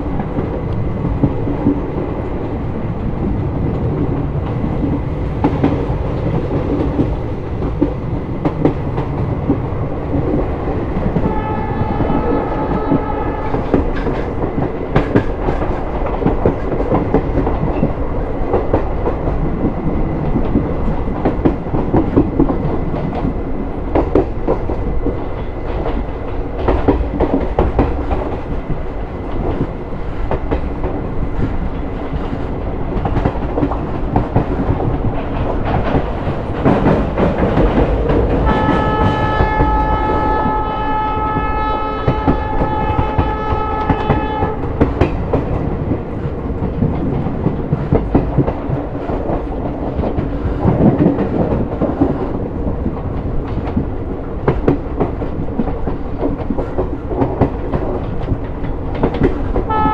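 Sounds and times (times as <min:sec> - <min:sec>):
train rumble: 0:00.0 - 0:59.9
train wheels clattering: 0:03.0 - 0:59.9
train horn blast: 0:11.2 - 0:13.8, 0:38.4 - 0:44.7, 0:59.7 - 0:59.9.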